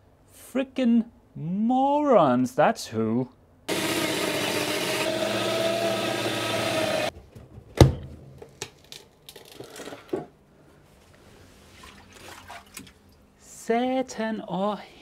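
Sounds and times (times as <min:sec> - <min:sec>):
power tool motor whining: 0:03.7 - 0:07.1.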